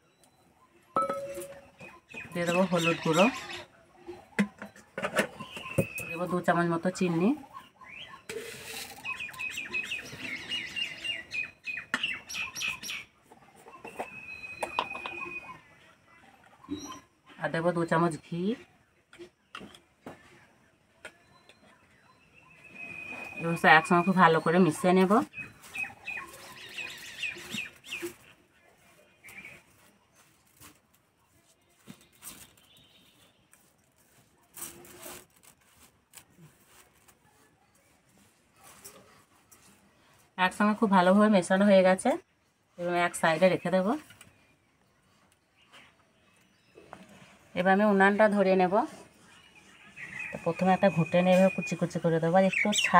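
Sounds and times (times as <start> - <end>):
small birds chirping: 5.3 - 18.8, 21.1 - 30.7, 42.8 - 52.9.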